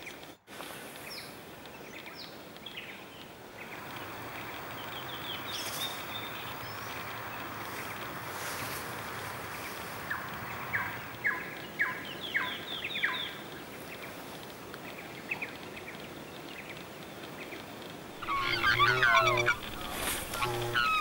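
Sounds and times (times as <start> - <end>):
outdoor background hiss: 0.0 - 21.0
swans calling: 18.1 - 21.0.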